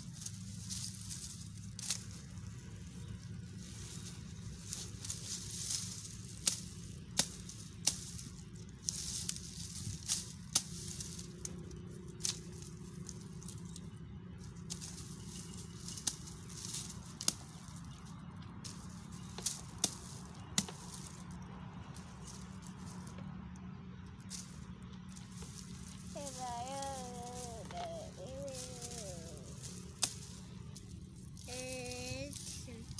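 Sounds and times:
twigs rustling and crackling: 0.0s - 32.9s
hand axe chopping branches: 4.7s - 11.6s, 18.7s - 21.2s, 25.4s - 30.8s.

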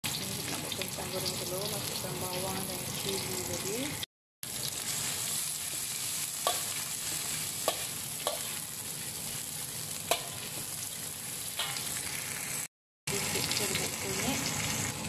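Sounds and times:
vegetables sizzling in hot oil: 0.0s - 15.0s
metal spatula clinking on pan: 6.4s - 6.7s, 7.6s - 8.5s, 10.1s - 10.4s, 11.6s - 11.9s.

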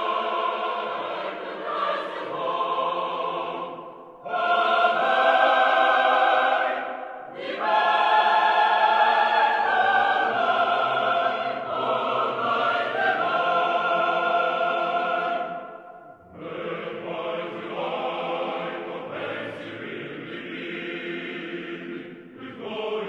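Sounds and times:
chant-like choir singing: 0.0s - 23.0s.

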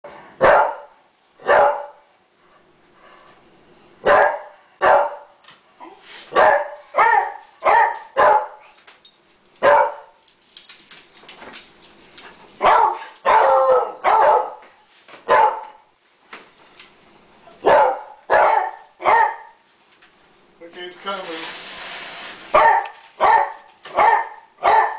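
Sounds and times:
dog barking: 0.4s - 2.0s, 4.0s - 5.3s, 6.3s - 8.6s, 9.6s - 10.1s, 12.6s - 14.7s, 15.3s - 15.8s, 17.6s - 19.6s, 22.5s - 24.9s.

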